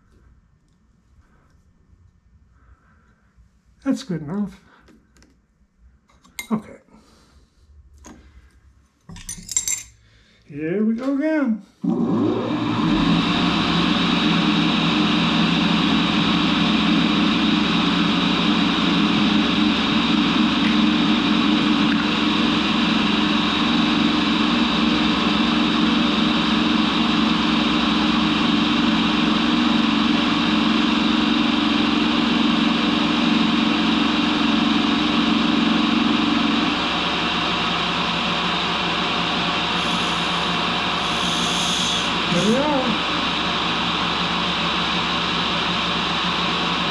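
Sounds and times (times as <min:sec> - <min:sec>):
tool grinder grinding: 0:11.8 - 0:45.4.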